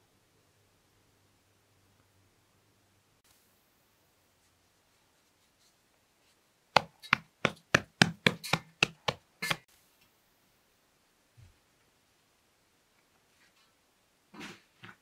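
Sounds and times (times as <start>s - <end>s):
hand slapping bread dough: 6.8s - 9.7s.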